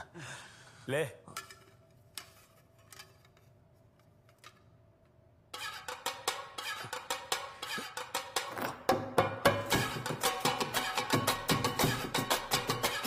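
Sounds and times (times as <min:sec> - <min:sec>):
steel plates being beaten: 0:05.5 - 0:13.0.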